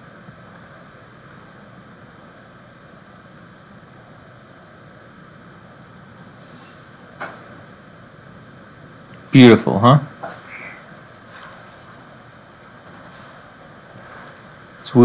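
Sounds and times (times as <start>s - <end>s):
steady background hiss: 0.0s - 15.0s
marker squeaking on whiteboard: 10.2s - 10.6s, 13.1s - 13.4s.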